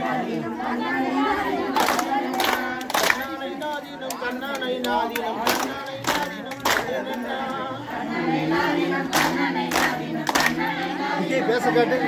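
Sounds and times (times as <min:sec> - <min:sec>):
group singing folk song: 0:00.0 - 0:12.0
sharp hand claps: 0:01.8 - 0:07.2, 0:09.1 - 0:10.7.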